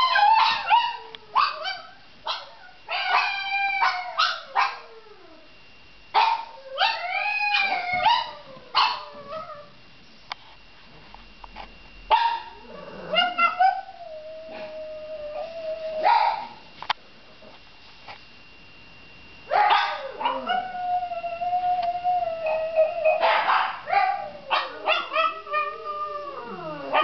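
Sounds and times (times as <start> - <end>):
small dog howling: 0.0 - 5.5, 6.4 - 9.8, 12.4 - 16.6, 19.5 - 27.0.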